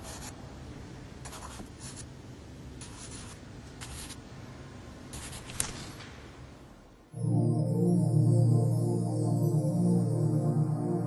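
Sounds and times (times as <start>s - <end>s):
pencil scratching on paper: 0.0s - 0.4s, 1.2s - 2.1s, 2.8s - 4.2s, 5.1s - 5.6s.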